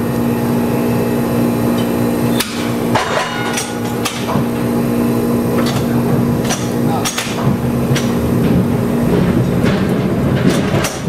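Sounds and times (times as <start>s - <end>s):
streetcar motor hum: 0.0s - 11.0s
wheels knocking over track: 6.5s - 11.0s.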